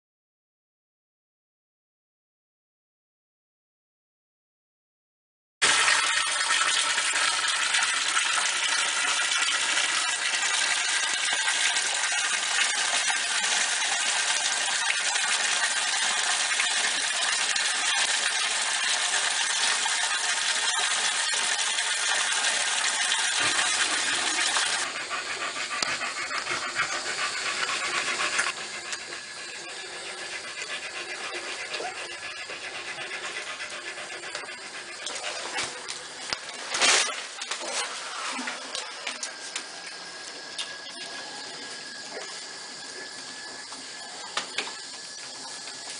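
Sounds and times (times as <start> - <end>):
dog panting: 23.3 - 36.3.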